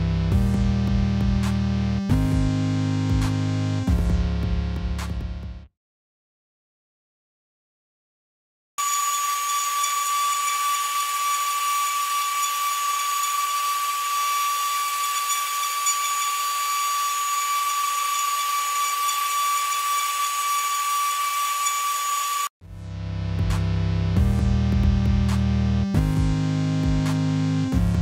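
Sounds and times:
engraving spindle whining: 0:08.8 - 0:22.5.

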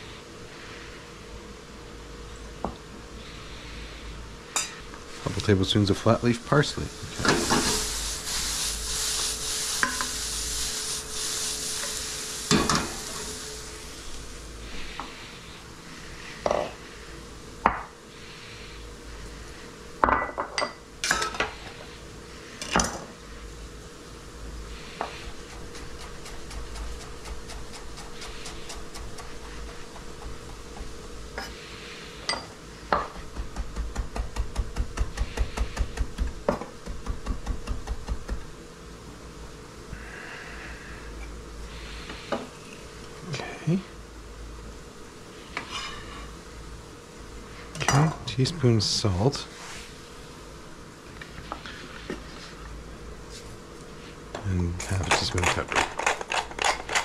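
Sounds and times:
vegetables sizzling in a skillet: 0:04.4 - 0:20.0, 0:21.0 - 0:43.2, 0:44.3 - 0:47.7
wooden spoon stirring: 0:25.0 - 0:31.6
knife chopping on wooden board: 0:25.4 - 0:31.0, 0:33.0 - 0:38.5.

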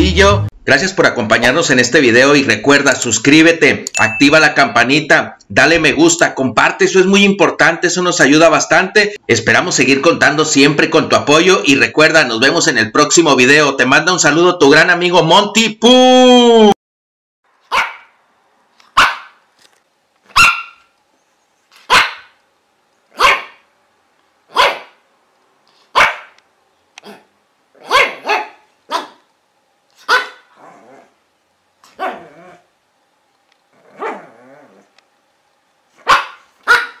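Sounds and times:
dog barking: 0:17.7 - 0:18.2, 0:18.9 - 0:19.4, 0:20.3 - 0:20.9, 0:21.8 - 0:22.4, 0:23.1 - 0:23.7, 0:24.5 - 0:25.0, 0:25.9 - 0:26.4, 0:27.0 - 0:29.3, 0:30.0 - 0:30.6, 0:31.9 - 0:32.6, 0:34.0 - 0:34.8, 0:36.0 - 0:37.0.

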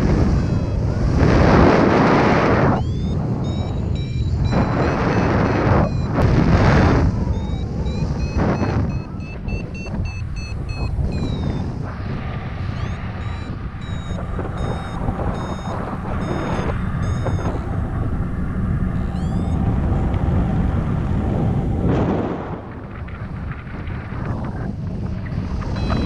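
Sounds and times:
variometer beeping: 0:00.0 - 0:12.0, 0:12.6 - 0:19.7, 0:25.5 - 0:26.0
wind on microphone: 0:00.0 - 0:26.0.

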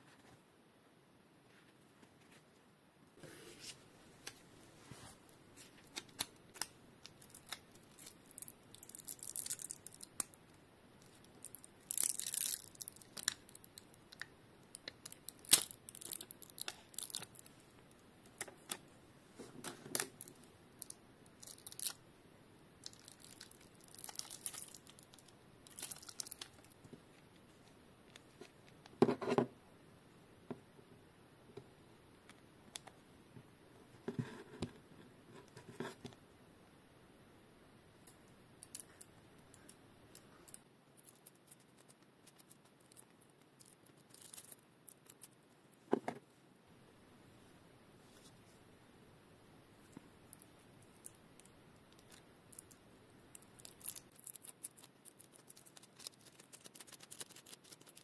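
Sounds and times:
foil packaging crinkling and tearing: 0:22.9 - 0:26.7, 0:53.6 - 0:58.0.

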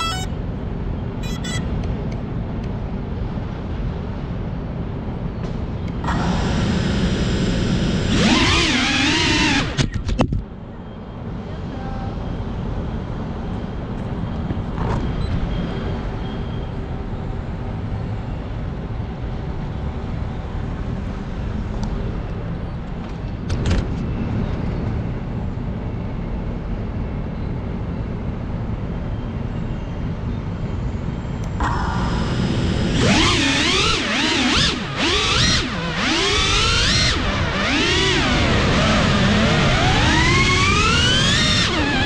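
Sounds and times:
drone motors whining: 0:00.0 - 0:00.4, 0:01.2 - 0:01.8, 0:05.9 - 0:10.4, 0:31.4 - 0:42.0
drone wind and vibration rumble: 0:00.0 - 0:10.7, 0:29.9 - 0:42.0.

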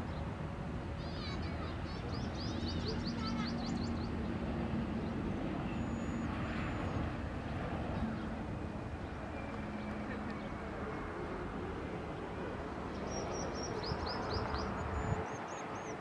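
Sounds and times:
distant jet engines rumbling: 0:00.0 - 0:16.0
birds chirping: 0:01.1 - 0:11.4, 0:12.1 - 0:16.0.

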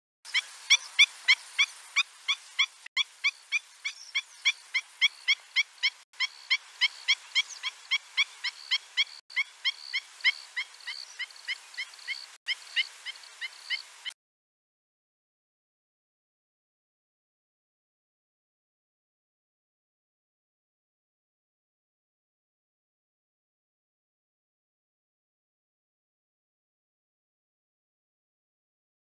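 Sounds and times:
bird yelping calls: 0:00.3 - 0:13.9.

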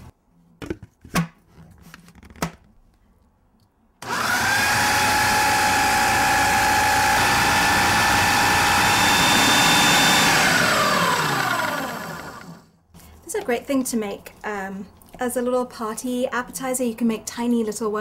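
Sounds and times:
food processor whining: 0:04.0 - 0:12.7.

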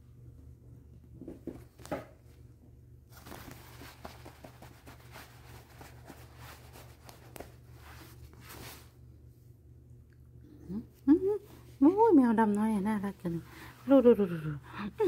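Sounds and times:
steady low hum: 0:00.0 - 0:15.0
comforter rustling: 0:03.1 - 0:09.0.

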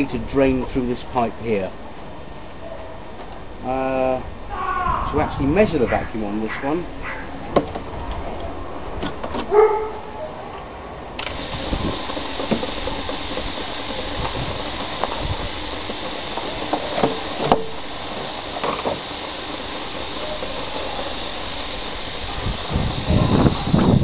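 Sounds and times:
vacuum pump hissing: 0:11.2 - 0:24.0.

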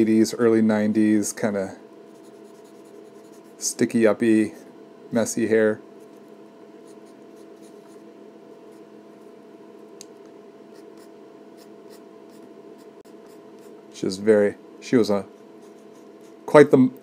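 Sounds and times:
steady hum: 0:00.0 - 0:17.0
pencil scratching on paper: 0:02.1 - 0:03.6, 0:06.8 - 0:08.0, 0:10.7 - 0:13.8, 0:15.6 - 0:16.4.

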